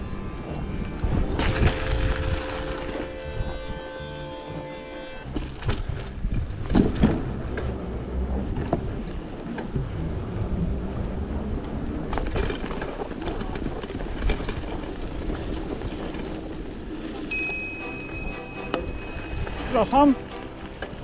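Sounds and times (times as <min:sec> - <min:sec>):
wind noise on microphone: 0:00.0 - 0:04.6, 0:05.2 - 0:21.0
bicycle tyre rumble: 0:00.0 - 0:21.0
bike knocks and rattles: 0:05.3 - 0:07.7.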